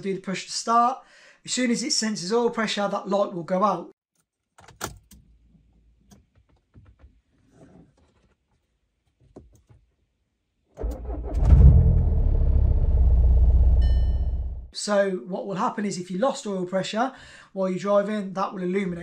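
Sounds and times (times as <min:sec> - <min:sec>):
diesel engine starting and idling: 0:10.8 - 0:14.7.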